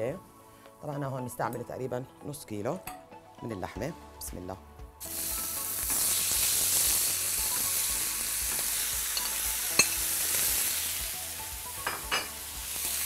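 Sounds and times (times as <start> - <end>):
beef sizzling in oil: 5.0 - 13.0.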